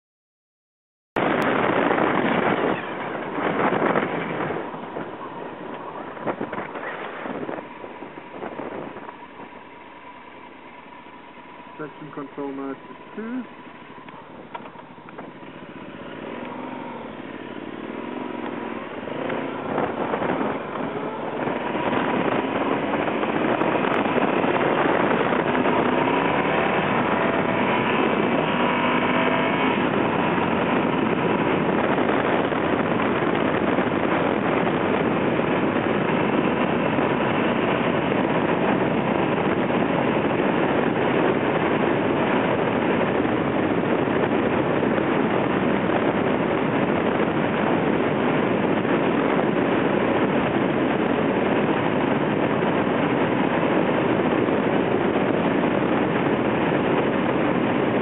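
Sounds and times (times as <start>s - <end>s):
loud rushing wind noise: 1.2s - 58.0s
motorcycle engine accelerating: 1.2s - 58.0s.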